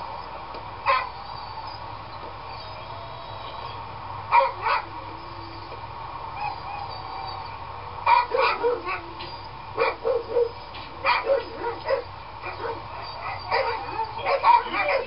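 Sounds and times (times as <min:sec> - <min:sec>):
dog barking: 0:00.9 - 0:01.2, 0:04.3 - 0:04.9, 0:08.1 - 0:09.2, 0:09.8 - 0:15.0.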